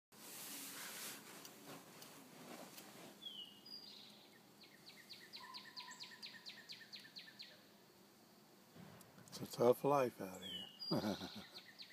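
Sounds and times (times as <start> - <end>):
songbird singing: 3.2 - 8.5, 9.2 - 11.9.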